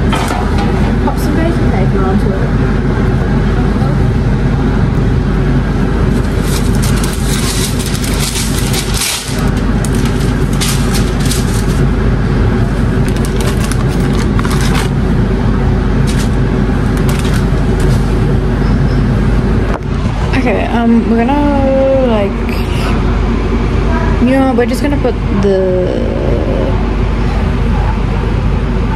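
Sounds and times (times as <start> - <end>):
loud steady motor hum: 0.0 - 28.9
baking paper crinkling: 6.1 - 11.9, 12.8 - 15.0, 16.0 - 18.3.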